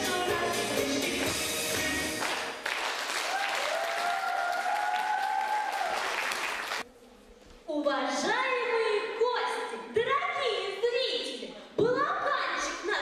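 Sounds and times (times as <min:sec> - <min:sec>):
recorded song with singing: 0:00.0 - 0:02.2
audience applauding: 0:02.0 - 0:06.8.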